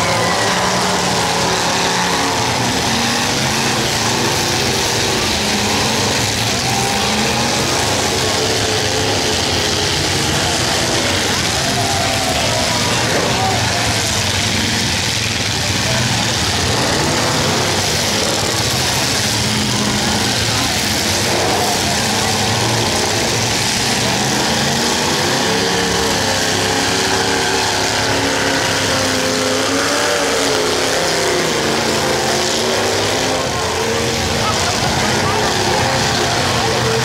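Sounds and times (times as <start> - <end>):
car engines revving hard: 0.0 - 37.0.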